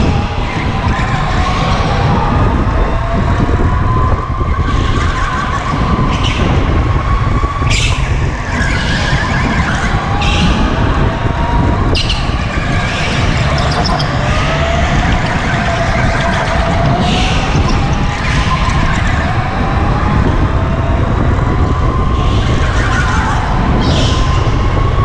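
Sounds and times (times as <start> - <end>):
go-kart motor whine: 0.0 - 25.0
heavy low rumble: 5.7 - 25.0
tyre squeals: 12.0 - 19.3.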